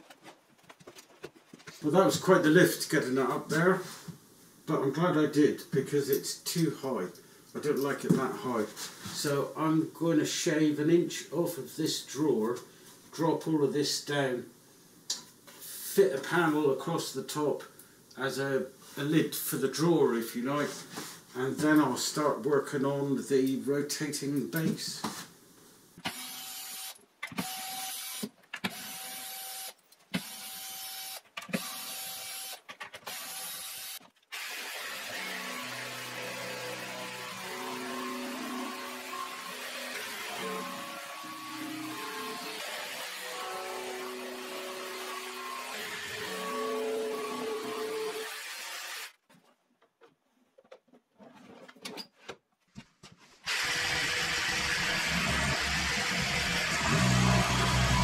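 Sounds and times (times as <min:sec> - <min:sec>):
cordless drill bursts: 0:26.0 - 0:49.1, 0:53.5 - 0:58.0
jigsaw cutting panel: 0:53.4 - 0:58.0
steady machine sound: 0:53.5 - 0:58.0.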